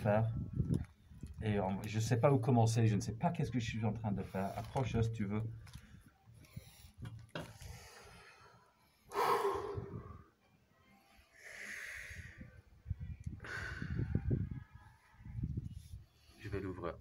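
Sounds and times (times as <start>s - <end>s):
person breathing through face mask: 6.4s - 10.2s, 11.2s - 12.7s, 13.4s - 14.4s.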